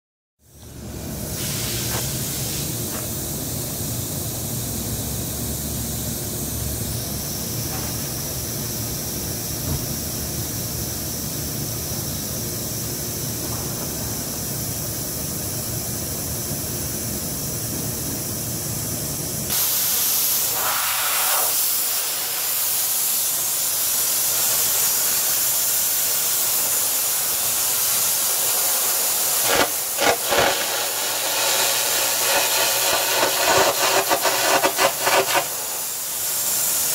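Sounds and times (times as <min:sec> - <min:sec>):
compressed air hissing: 0:00.5 - 0:18.3, 0:19.5 - 0:36.9
carbon arc crackling: 0:28.9 - 0:36.0.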